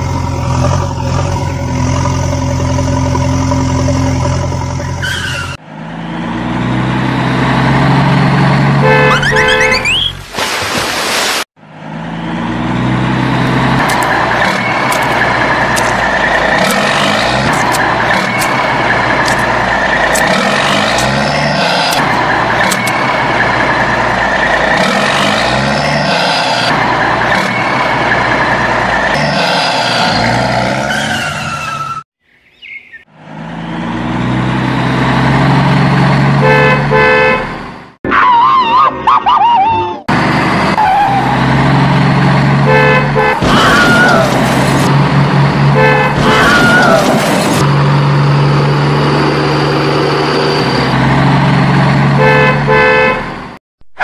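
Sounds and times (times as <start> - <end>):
car engines running: 0.0 - 10.4, 11.6 - 32.0, 33.1 - 38.0, 40.0 - 53.6
car horns honking: 8.7 - 10.2, 36.2 - 37.6, 42.5 - 44.2, 45.6 - 46.9, 52.1 - 53.4.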